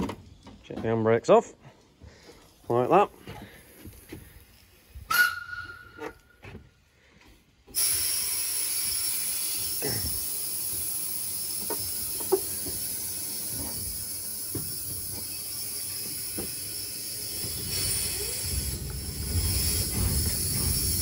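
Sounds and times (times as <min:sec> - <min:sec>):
steam locomotive hissing: 0:07.7 - 0:21.0.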